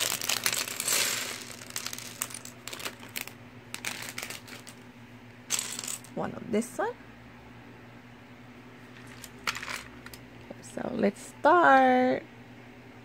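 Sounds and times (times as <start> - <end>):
plastic bag crinkling: 0.0 - 4.8
plastic bricks clicking and clattering: 0.0 - 4.8.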